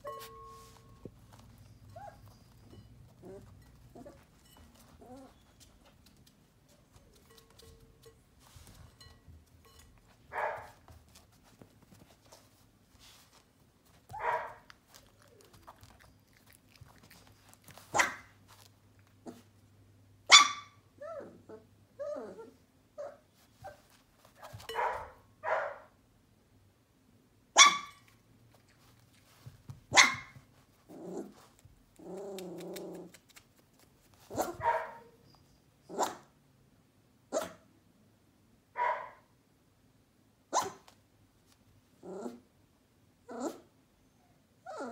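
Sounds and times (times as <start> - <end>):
puppy growling: 3.2 - 4.2, 30.9 - 33.2, 42.0 - 42.5
puppy whimpering: 5.0 - 5.8, 15.0 - 16.4, 43.3 - 44.9.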